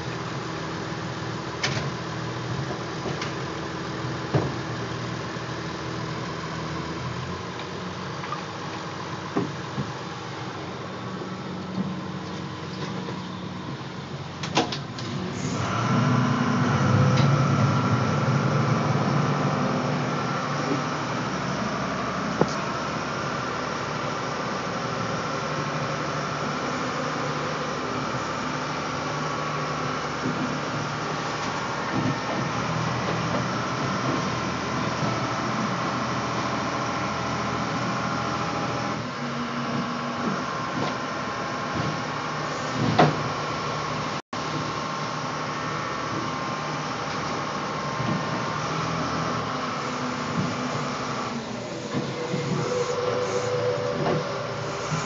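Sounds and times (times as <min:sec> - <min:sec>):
boat engine running: 0:15.0 - 0:43.4, 0:44.4 - 0:55.0.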